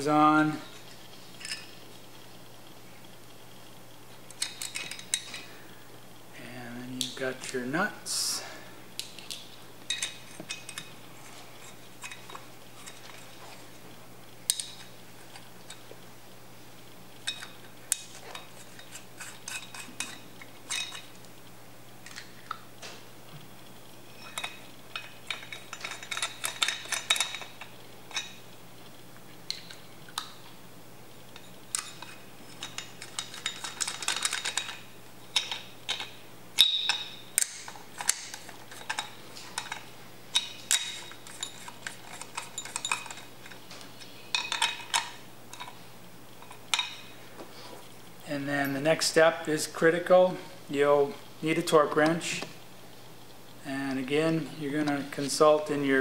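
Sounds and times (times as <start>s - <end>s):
nuts and washers clinking on metal: 24.2s - 28.4s, 31.4s - 43.6s, 44.3s - 45.8s.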